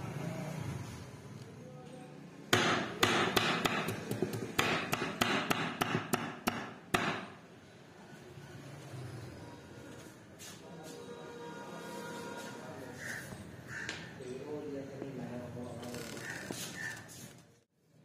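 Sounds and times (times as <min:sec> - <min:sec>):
knife chopping on wooden board: 0:02.6 - 0:07.3.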